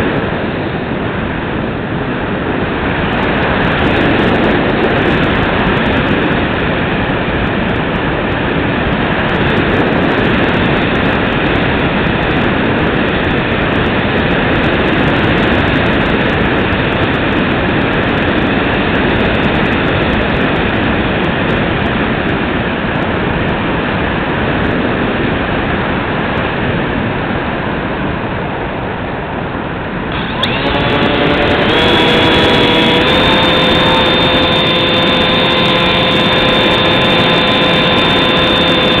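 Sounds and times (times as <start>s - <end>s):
rushing wind noise: 0.0s - 39.0s
electric motor whine: 30.1s - 39.0s.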